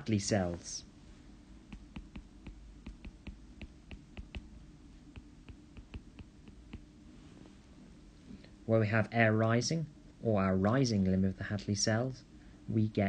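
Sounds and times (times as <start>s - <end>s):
stylus tapping on screen: 1.7s - 6.9s.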